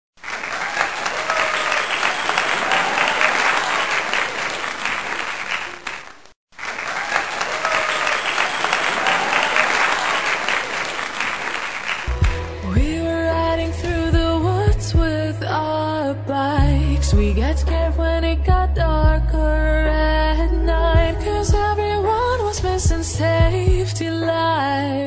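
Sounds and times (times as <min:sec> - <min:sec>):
crowd applauding and cheering: 0:00.2 - 0:13.1.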